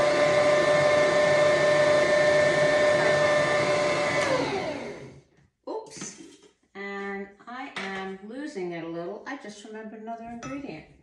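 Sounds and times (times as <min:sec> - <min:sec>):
stand mixer motor whine: 0:00.0 - 0:05.2.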